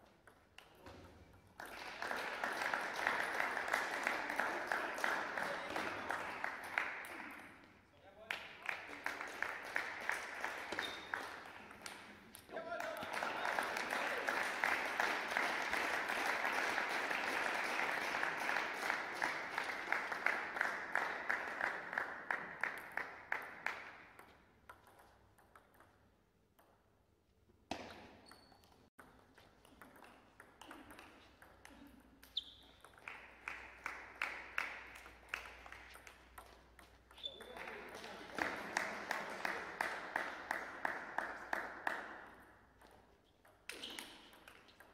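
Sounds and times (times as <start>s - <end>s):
clapping and applause: 1.6s - 24.2s, 33.0s - 42.5s
short high squeaks: 32.3s - 32.9s.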